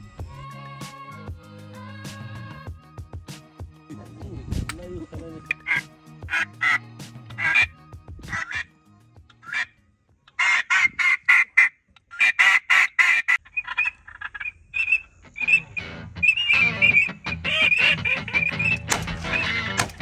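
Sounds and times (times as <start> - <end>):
duck quacking: 5.5 - 8.7, 9.4 - 9.7, 10.3 - 19.9
short high whistled notes: 14.8 - 17.9.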